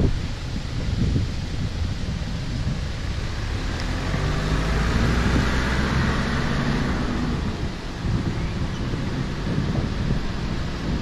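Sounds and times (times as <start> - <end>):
steady low rumble: 0.0 - 11.0
vehicle passing close by: 2.5 - 11.0.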